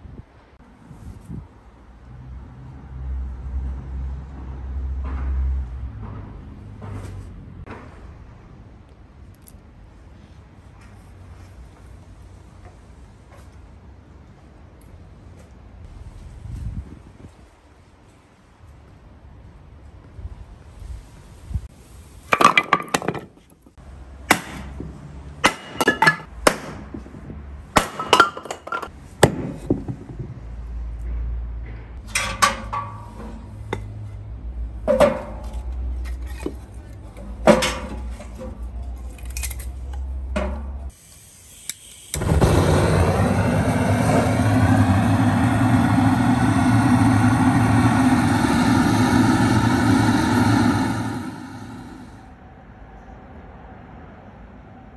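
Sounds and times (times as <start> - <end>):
fire burning in stove: 40.9 - 52.2.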